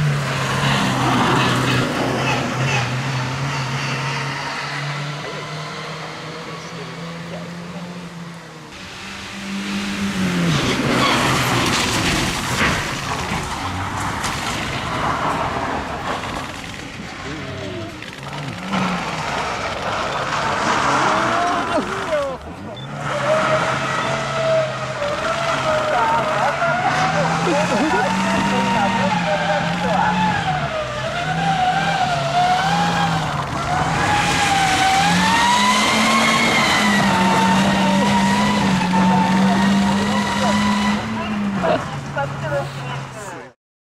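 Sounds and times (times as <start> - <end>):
van engine running: 6.4 - 43.5
tyres on wet gravel: 10.1 - 43.4.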